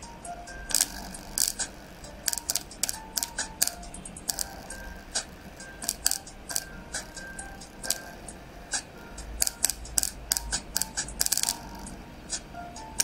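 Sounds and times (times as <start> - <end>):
clicking percussion music: 0.0 - 13.0.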